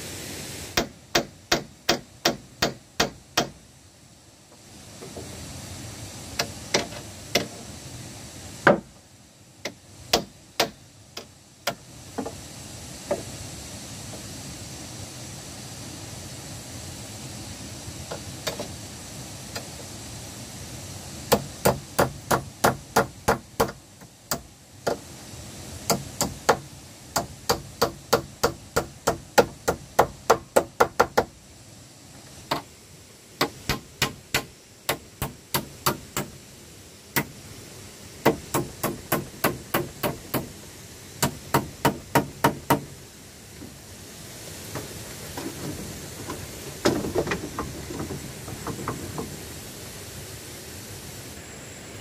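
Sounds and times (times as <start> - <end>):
claw hammer nailing wooden boards: 0.8 - 3.6, 6.4 - 7.5, 8.6 - 8.9, 9.6 - 12.3, 21.3 - 25.0, 25.9 - 26.6, 27.2 - 31.3, 33.4 - 36.3, 38.2 - 40.5, 41.2 - 42.9.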